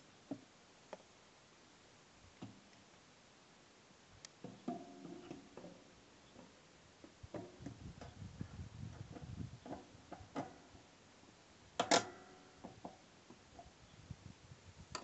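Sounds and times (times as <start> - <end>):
small metal clicks and knocks: 11.8 - 13.0.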